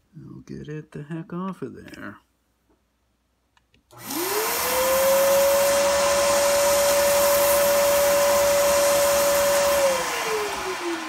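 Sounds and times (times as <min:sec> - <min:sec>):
shop vac motor whine: 0:03.9 - 0:11.0.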